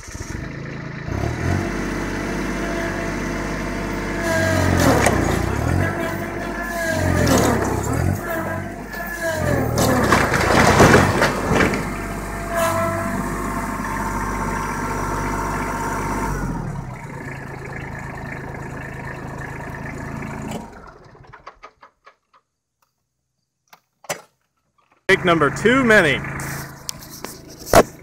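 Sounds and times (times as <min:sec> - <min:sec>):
tractor diesel engine running: 0:00.0 - 0:21.9, 0:25.1 - 0:28.0
wooden boards cracking and crashing: 0:03.8 - 0:14.5, 0:20.6 - 0:22.5.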